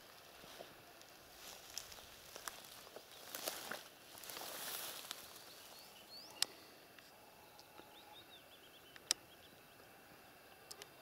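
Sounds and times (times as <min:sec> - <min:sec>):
bird chirping: 0:03.0 - 0:11.0
sharp clicks: 0:08.9 - 0:09.3.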